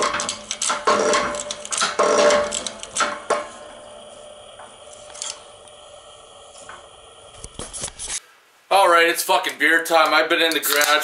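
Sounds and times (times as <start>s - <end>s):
metallic clicks and scraping: 0.0s - 3.6s, 4.9s - 5.8s.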